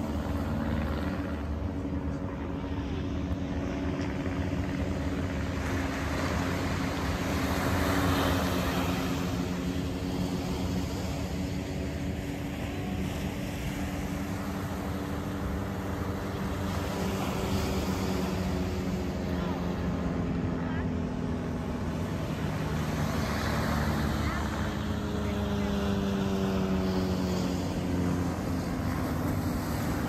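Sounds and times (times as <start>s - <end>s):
propeller planes droning overhead: 0.0s - 30.0s.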